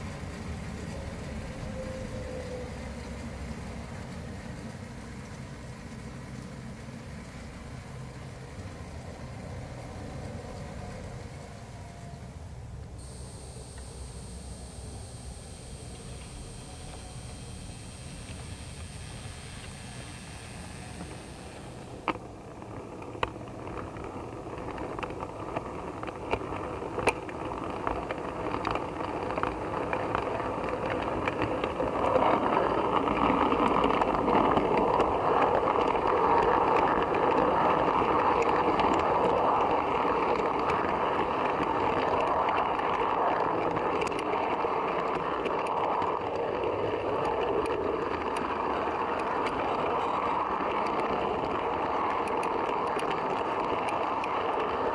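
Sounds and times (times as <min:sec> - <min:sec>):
sharp clicks: 0:13.0 - 0:22.2.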